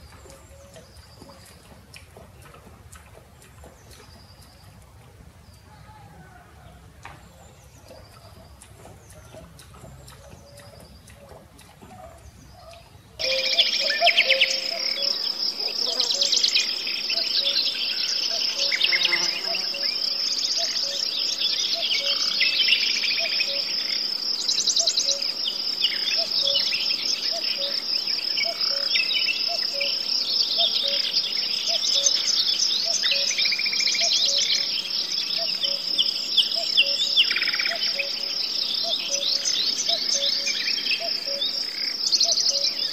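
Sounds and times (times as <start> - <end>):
birds chirping: 0.0 - 42.9
high insect chorus: 13.2 - 42.9.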